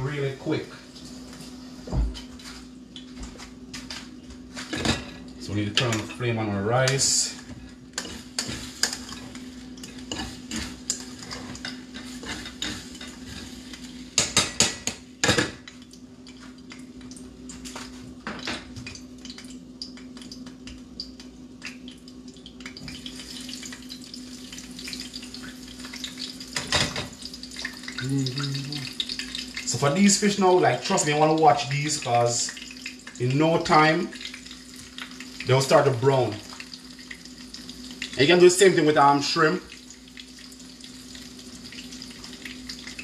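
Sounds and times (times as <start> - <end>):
steady low hum: 0.0 - 39.1
hot oil sizzling: 4.6 - 43.0.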